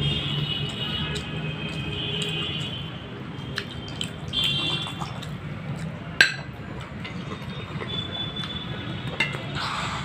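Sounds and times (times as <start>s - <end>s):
glass bowl clinking on plate: 6.2s - 7.2s
glassware and dishes clicking: 6.2s - 7.4s.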